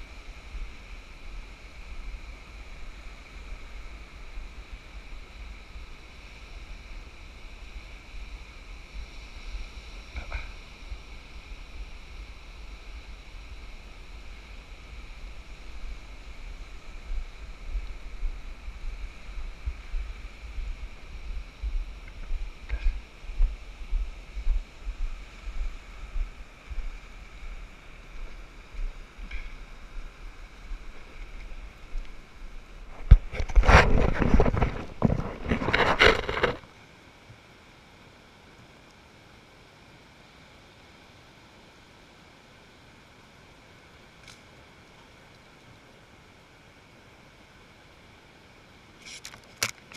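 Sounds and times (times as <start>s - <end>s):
wind gusting on microphone: 0.0s - 36.6s
hand rubbing on camera: 32.9s - 36.6s
wind buffeting microphone: 32.9s - 36.6s.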